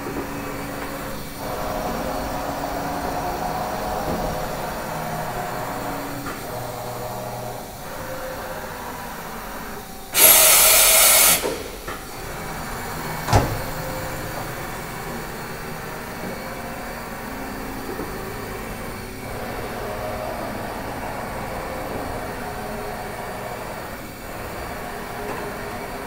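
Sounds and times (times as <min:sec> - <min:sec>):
machine hum with whining tones: 0:00.0 - 0:26.0
loud hiss: 0:10.1 - 0:11.8.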